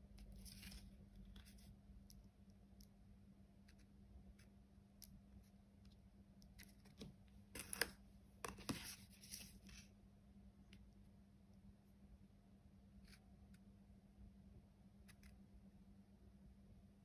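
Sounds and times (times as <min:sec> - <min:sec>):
low steady hum: 0:00.0 - 0:17.0
palette knife scraping: 0:07.6 - 0:09.8.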